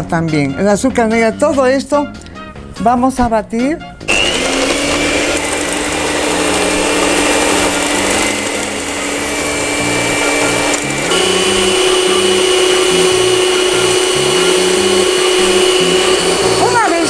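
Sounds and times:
electric stand mixer running: 0:04.1 - 0:17.0.

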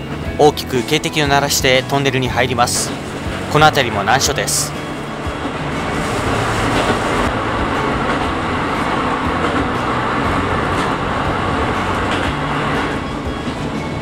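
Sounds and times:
train rumbling through tunnel: 0:00.0 - 0:14.0
low hum: 0:04.6 - 0:14.0.

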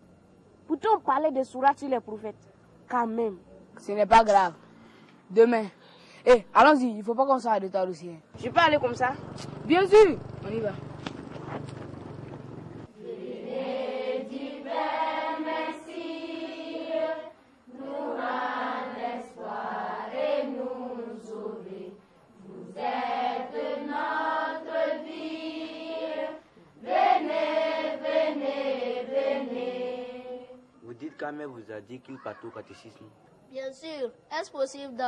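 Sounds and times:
breaths: 0:04.6 - 0:06.3, 0:26.4 - 0:26.8
voices chanting: 0:12.4 - 0:33.1.

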